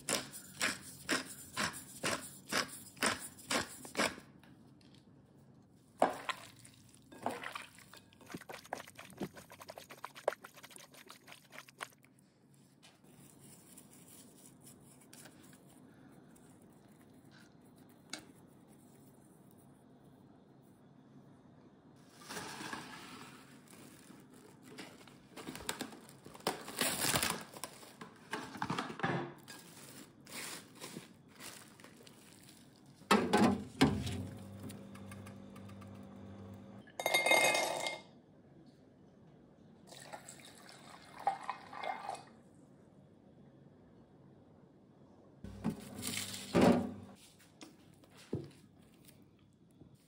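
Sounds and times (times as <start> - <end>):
water pouring into glass jug: 39.9 - 42.3.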